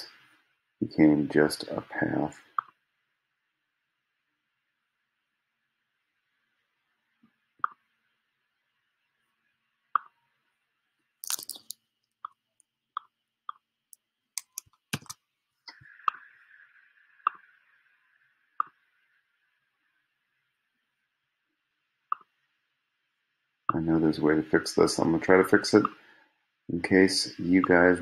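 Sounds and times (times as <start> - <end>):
computer mouse clicking: 14.4 - 15.2.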